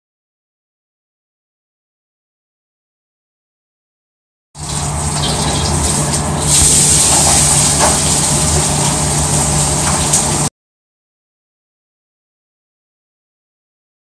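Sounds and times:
loud rushing hiss: 6.3 - 10.5.

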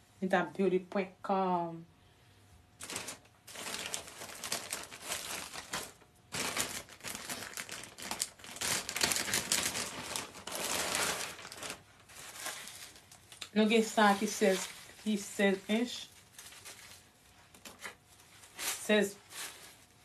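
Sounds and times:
packaging crinkling and rustling: 2.8 - 20.0.

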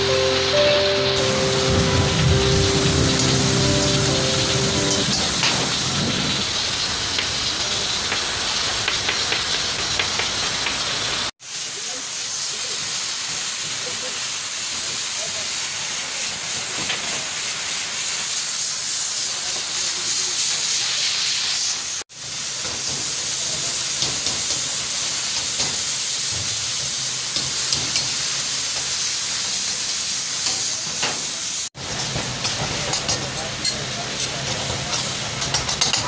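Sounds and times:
pressure cooker steam hissing: 0.0 - 36.0
wok hissing and sizzling: 0.0 - 36.0
utensils clicking on pan: 7.1 - 11.2, 22.5 - 36.0.

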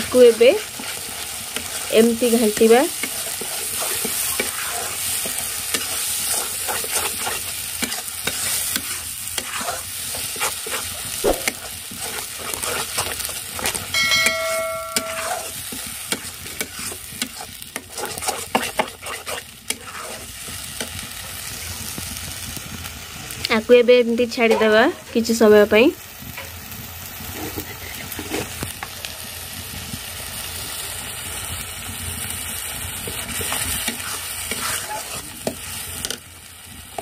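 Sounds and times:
spices sizzling in oil: 0.0 - 37.0
metal spatula scraping pan: 0.1 - 21.0, 24.4 - 25.2, 33.2 - 36.2.

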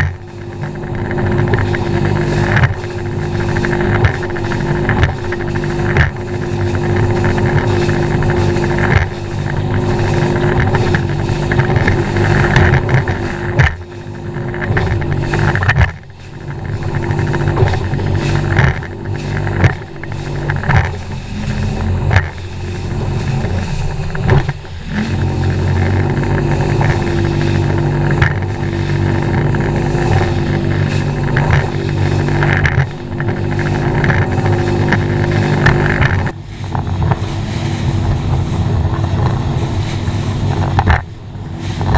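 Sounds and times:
hull slapping through water: 0.0 - 41.9
outboard motor drone: 0.0 - 41.9
wind buffeting microphone: 0.0 - 41.9.

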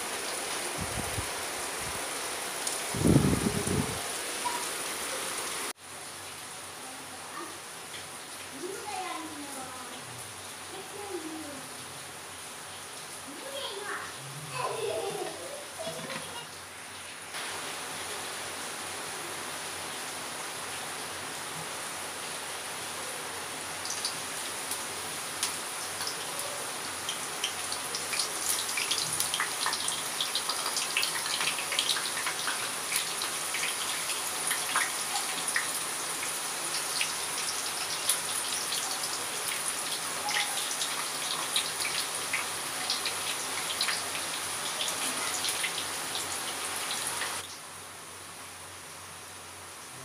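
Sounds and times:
vegetables sizzling in hot oil: 23.8 - 47.7.

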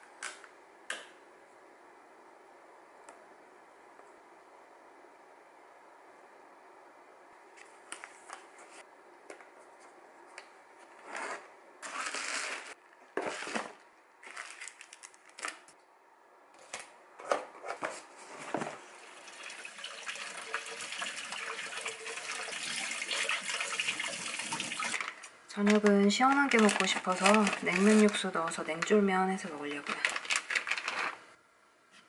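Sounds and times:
paper and cardboard rustling: 10.9 - 15.7, 25.0 - 29.0, 29.6 - 31.3
kitchen tap running: 18.9 - 25.1.

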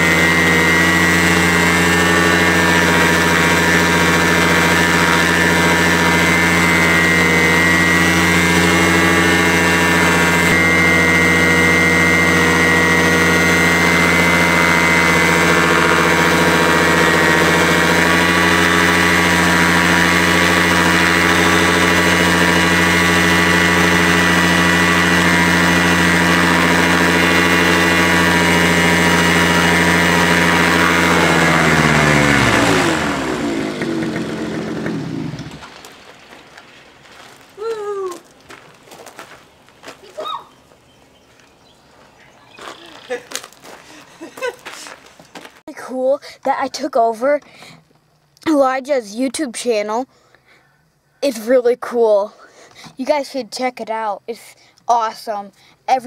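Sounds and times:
paramotor engine and propeller: 0.0 - 38.4.

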